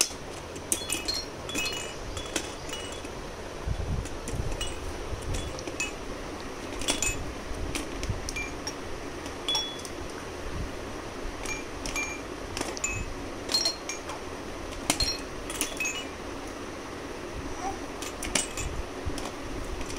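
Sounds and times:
tumbler toy chiming: 0:08.3 - 0:08.8, 0:09.5 - 0:09.9, 0:11.4 - 0:14.1, 0:15.0 - 0:16.2.

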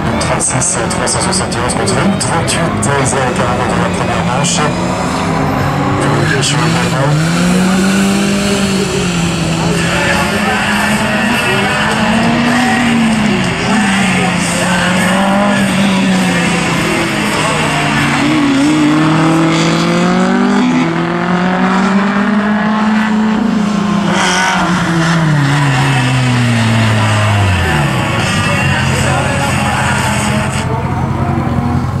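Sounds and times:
racing car engine revving: 0:00.0 - 0:32.0.

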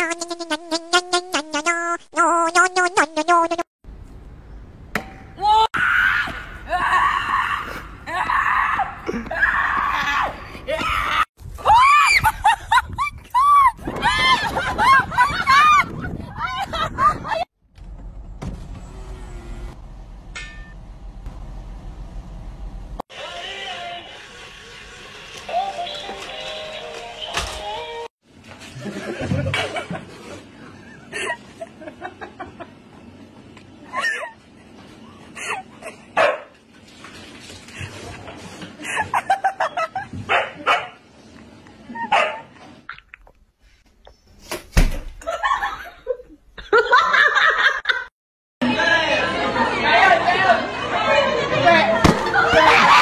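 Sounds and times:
low street rumble: 0:17.7 - 0:25.1
dog barking: 0:36.2 - 0:36.5, 0:40.3 - 0:41.0, 0:42.1 - 0:42.5.

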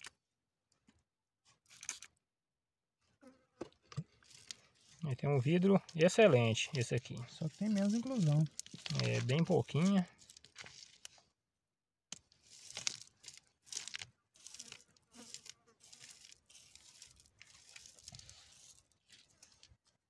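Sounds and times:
scratchy handling noise: 0:04.0 - 0:11.2, 0:12.2 - 0:19.8.

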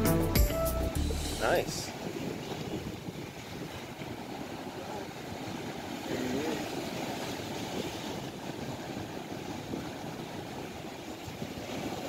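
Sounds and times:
surf breaking on rocks: 0:01.4 - 0:12.0.

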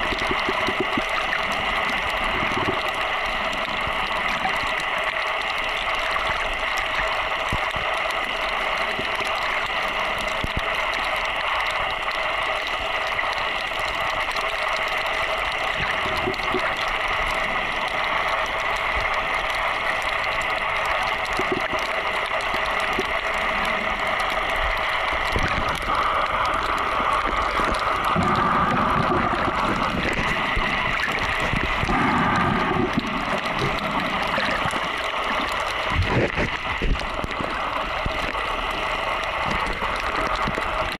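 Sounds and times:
constant multi-tone hum: 0:00.0 - 0:40.9
muffled underwater hiss: 0:00.0 - 0:40.9
water sloshing and bubbling: 0:00.0 - 0:40.9.

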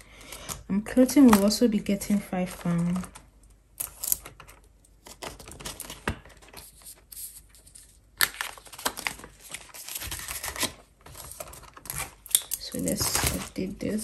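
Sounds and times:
plastic crinkling and rustling: 0:04.2 - 0:14.0.

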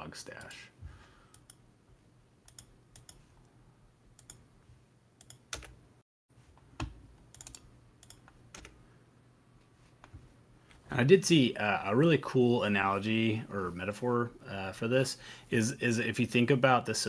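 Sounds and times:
computer keyboard and mouse clicks: 0:02.5 - 0:03.2, 0:05.2 - 0:05.8, 0:06.8 - 0:08.8.

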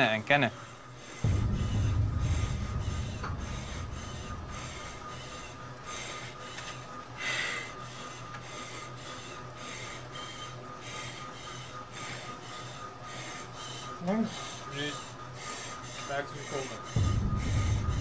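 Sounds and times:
rhythmic hissing pulses: 0:01.0 - 0:07.8, 0:14.3 - 0:18.0
steady hum: 0:01.2 - 0:07.1, 0:17.0 - 0:18.0.

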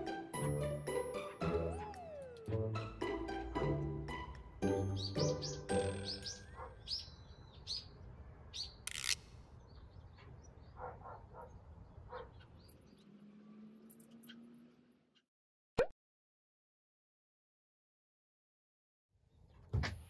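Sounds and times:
small birds chirping: 0:04.9 - 0:15.2.

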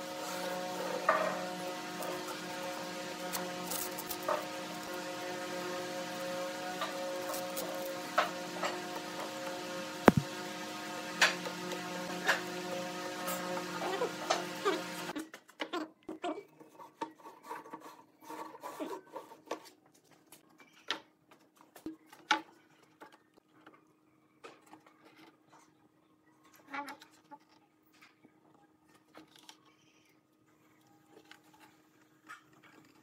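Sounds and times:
faint steady hum: 0:00.0 - 0:15.2.

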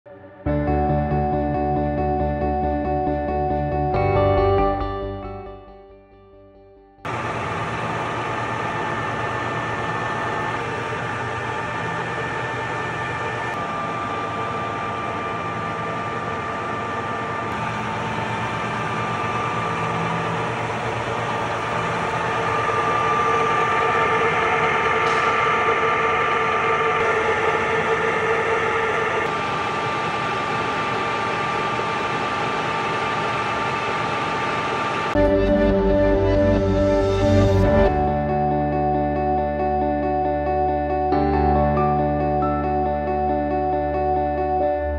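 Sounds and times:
lathe gears whining: 0:07.1 - 0:38.2.

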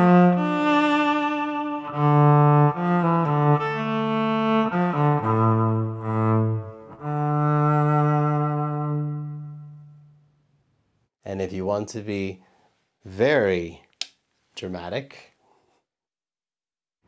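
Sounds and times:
bowed electric cello melody: 0:00.0 - 0:10.1.

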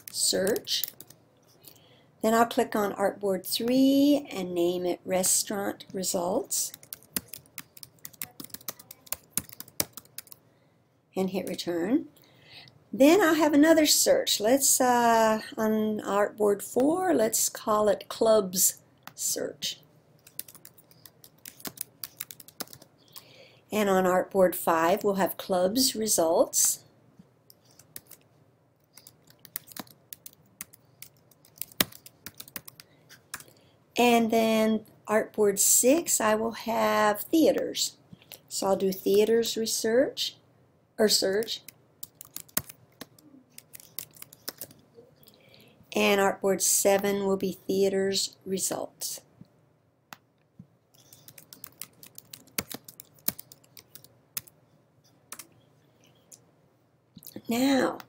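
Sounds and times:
typing on computer keyboard: 0:00.0 - 0:01.2, 0:06.6 - 0:10.4, 0:20.2 - 0:22.9, 0:27.7 - 0:28.3, 0:28.9 - 0:33.5, 0:41.6 - 0:44.8, 0:50.9 - 0:54.6.

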